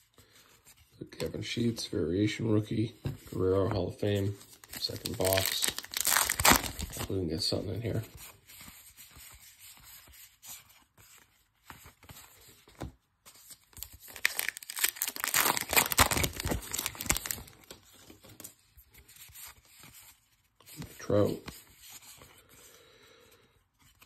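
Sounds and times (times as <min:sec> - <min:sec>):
cards rustling and clicking: 0:03.0 - 0:07.2, 0:07.9 - 0:22.7
wrapper tearing and crinkling: 0:04.5 - 0:07.1, 0:13.8 - 0:17.8.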